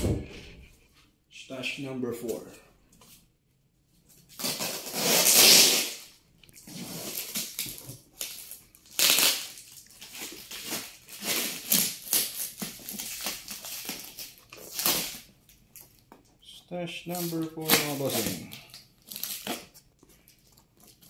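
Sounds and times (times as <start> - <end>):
tape crinkling: 4.1 - 21.0
packing tape ripping off cardboard: 4.3 - 16.0, 17.1 - 21.0.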